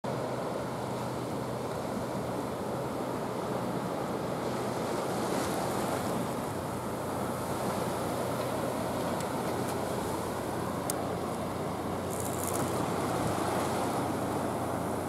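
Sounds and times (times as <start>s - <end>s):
sea water washing on concrete: 4.6s - 15.0s.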